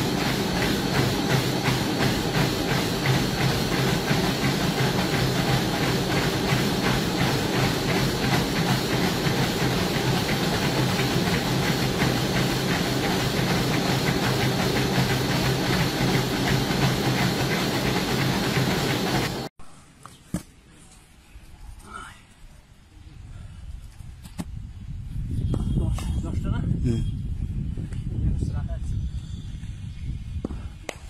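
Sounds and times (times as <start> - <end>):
footfalls thudding on treadmill belt: 0.0 - 19.5
treadmill motor and belt humming: 0.0 - 19.5.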